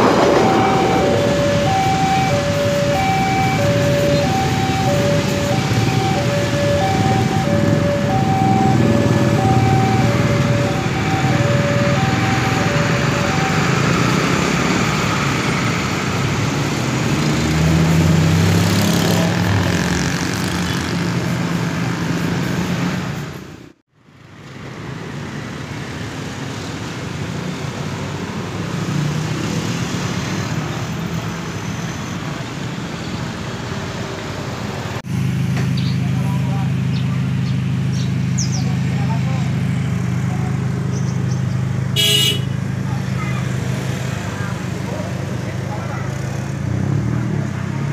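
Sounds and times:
two-tone crossing alarm: 0.0s - 14.7s
bus engine: 0.0s - 47.9s
motorcycle engines: 0.0s - 47.9s.

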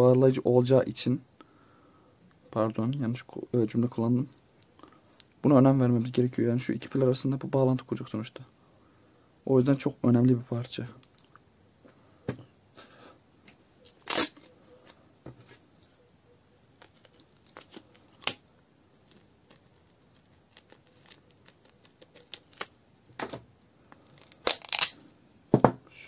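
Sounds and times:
tape tearing off roll: 13.9s - 14.5s, 16.9s - 18.5s, 24.0s - 25.2s
handling clicks and rustles: 16.7s - 25.3s.

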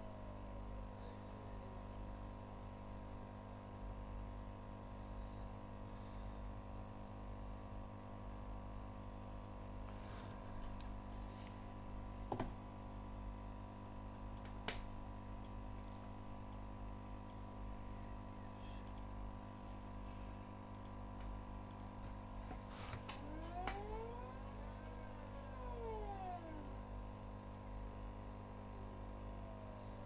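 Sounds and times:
sharp clicks: 18.8s - 19.1s, 20.7s - 22.0s
stepper motors whining: 23.1s - 27.1s.

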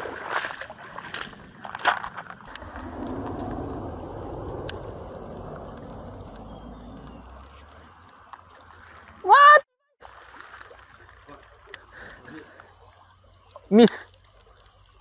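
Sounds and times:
high-pitched insect drone: 1.1s - 9.0s
rushing noise: 2.5s - 7.9s.

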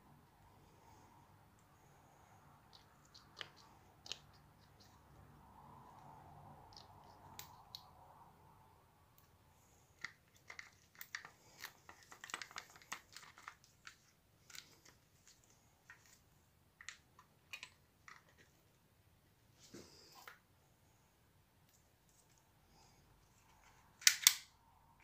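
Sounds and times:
plastic and metal parts clicking: 24.0s - 24.5s.

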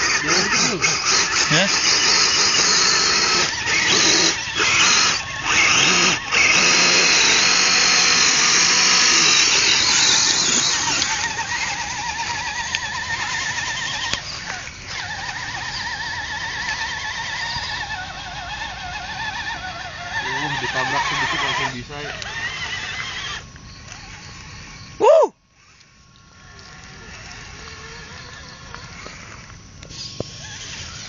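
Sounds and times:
toy truck electric motor whining: 0.0s - 31.0s.

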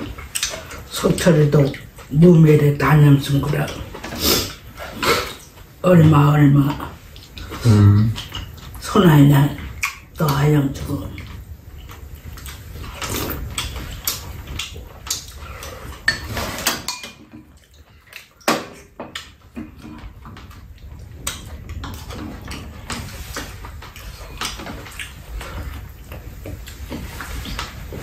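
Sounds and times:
chewing: 7.0s - 8.8s, 11.1s - 28.0s
utensils clinking against bowls: 11.9s - 20.4s.

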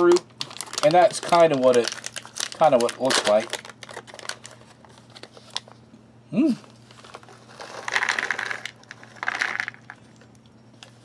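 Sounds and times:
foil pouch crinkling: 0.0s - 5.8s, 6.9s - 10.0s
short vocal hum: 6.3s - 6.8s.

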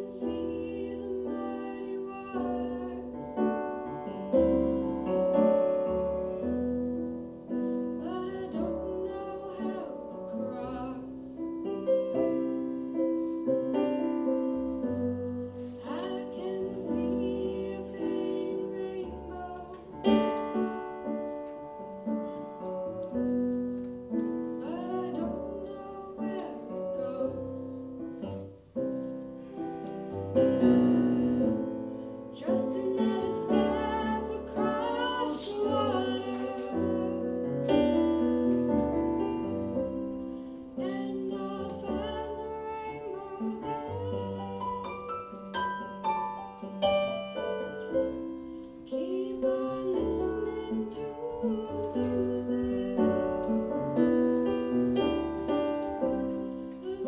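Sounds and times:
woman singing: 0.0s - 6.4s, 7.4s - 12.6s, 14.9s - 21.2s, 24.5s - 27.9s, 32.3s - 39.3s, 39.9s - 45.5s, 47.3s - 57.0s
digital piano: 0.0s - 57.0s.

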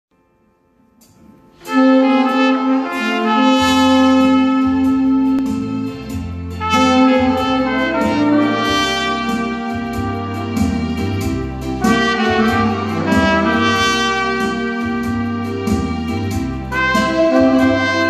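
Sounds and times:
trumpet slow melody: 0.2s - 18.0s
saxophone: 0.9s - 18.0s
light cymbal ticks: 1.0s - 1.2s
bass line: 1.2s - 18.0s.

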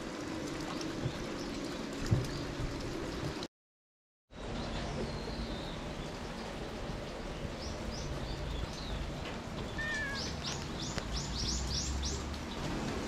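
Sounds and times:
birds chirping: 4.4s - 12.7s.

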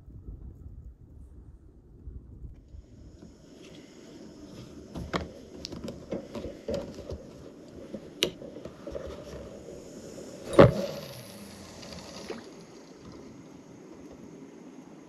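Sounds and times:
faint hiss: 2.6s - 15.0s.

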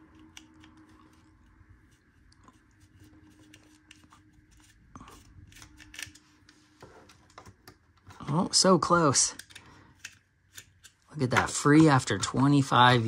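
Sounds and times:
screwdriver clicks and scrapes: 0.0s - 1.5s, 2.8s - 6.6s, 9.3s - 11.0s.

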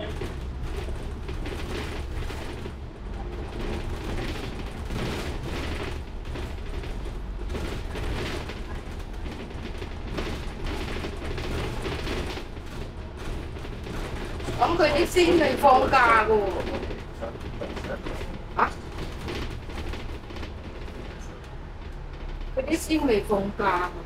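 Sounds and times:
bodywork rattling: 0.0s - 24.0s
bus engine and road rumble: 0.0s - 24.0s.

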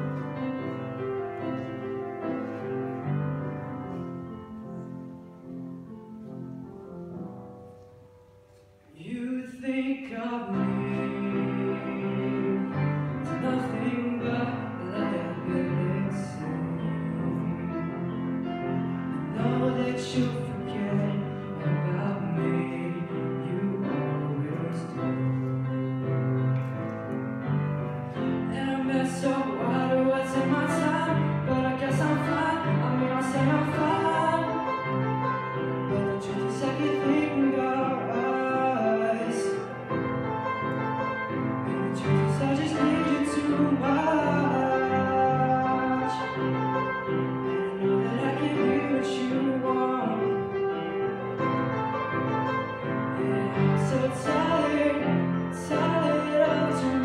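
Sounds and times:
upright piano: 0.0s - 57.0s
man singing: 8.9s - 26.2s, 28.2s - 40.2s, 41.4s - 51.6s, 52.8s - 57.0s.

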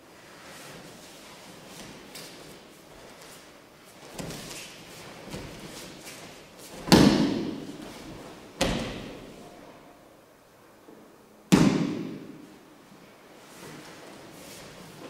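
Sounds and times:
bodies thudding on mats: 6.7s - 9.3s.

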